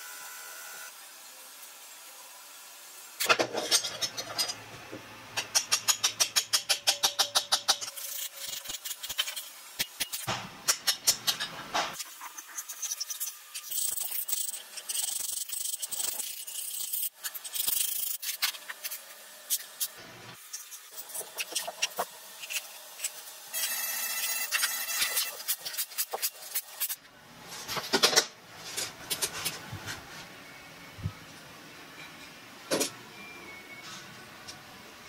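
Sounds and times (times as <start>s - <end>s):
metal parts scraping and clinking: 3.2s - 4.6s, 5.4s - 27.0s.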